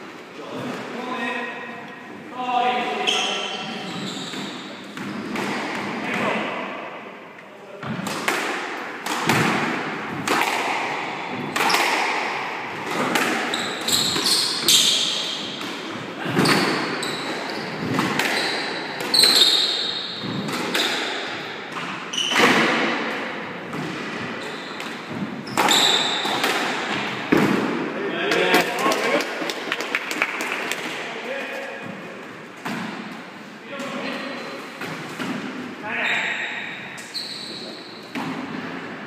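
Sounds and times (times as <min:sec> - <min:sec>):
shoes squeaking on wooden floor: 0:03.0 - 0:05.4, 0:13.4 - 0:15.6, 0:16.2 - 0:20.5, 0:24.3 - 0:26.3, 0:36.0 - 0:38.1
squash ball hits echoing: 0:04.3 - 0:07.0, 0:07.8 - 0:31.1, 0:37.9 - 0:39.0.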